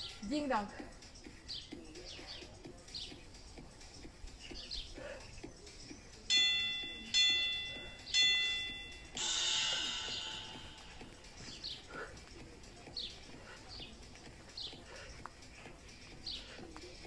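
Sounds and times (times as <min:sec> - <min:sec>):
birds chirping faintly: 0:00.0 - 0:17.0
short ringing chime tones: 0:06.3 - 0:10.8
long harsh timer tone: 0:06.3 - 0:11.3.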